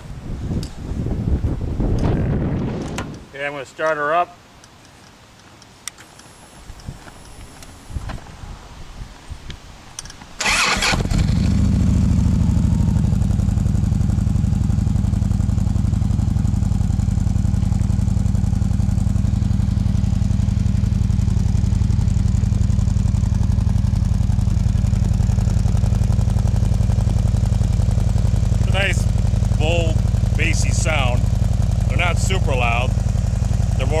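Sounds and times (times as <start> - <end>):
engine starter cranking: 10.4 - 11.6
motorcycle engine idling: 10.4 - 34.0.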